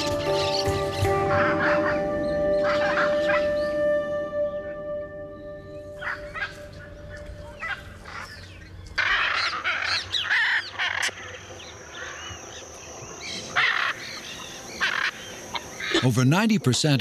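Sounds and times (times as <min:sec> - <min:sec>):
macaw squawks: 0:09.0 - 0:11.4, 0:14.8 - 0:16.1.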